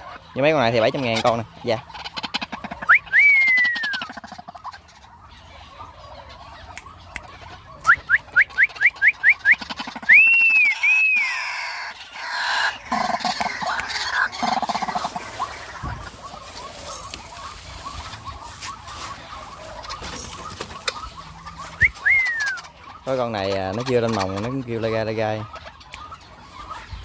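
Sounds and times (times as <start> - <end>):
bird calling: 0.0 - 27.0
rustling: 14.3 - 22.1.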